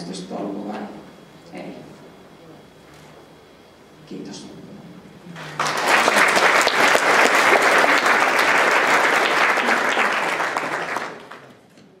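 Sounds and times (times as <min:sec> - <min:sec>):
audience applauding: 0:05.4 - 0:11.6.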